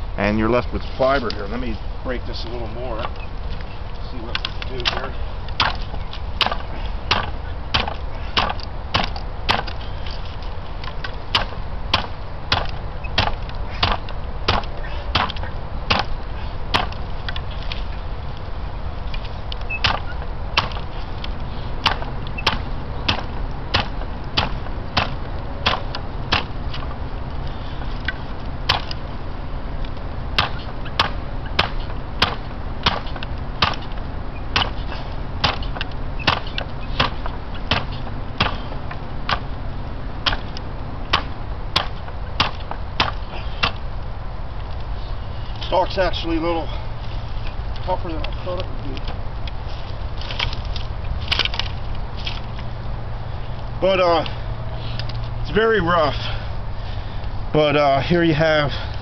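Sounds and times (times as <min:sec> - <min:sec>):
wooden hemp break knocking: 0:19.2 - 0:27.0, 0:30.4 - 0:39.5.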